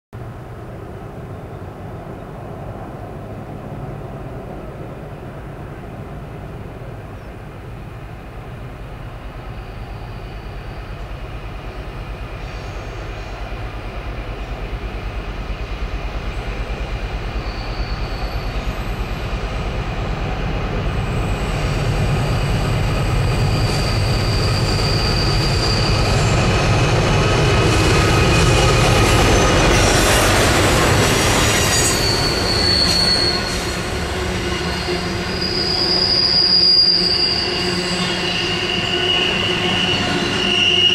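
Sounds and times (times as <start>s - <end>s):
diesel locomotive engine: 0.2s - 40.9s
train wheels squealing: 9.4s - 13.7s, 16.3s - 19.6s, 20.9s - 40.9s.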